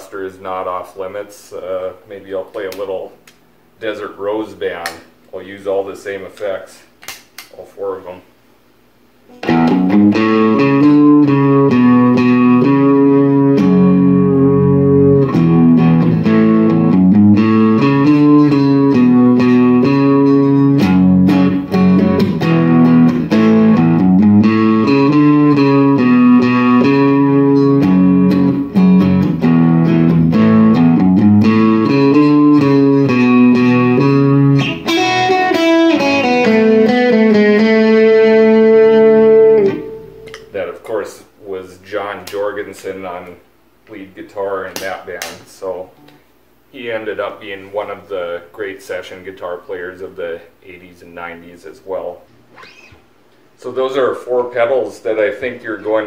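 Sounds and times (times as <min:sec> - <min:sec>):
country-style electric guitar picking: 0:09.3 - 0:40.6.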